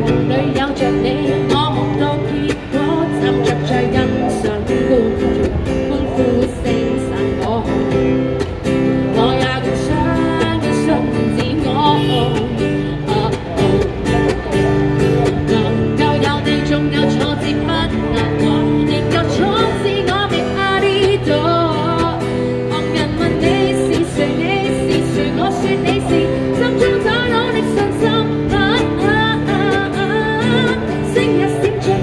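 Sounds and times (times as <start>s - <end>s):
strummed acoustic guitar: 0.0s - 32.0s
woman singing: 0.0s - 32.0s.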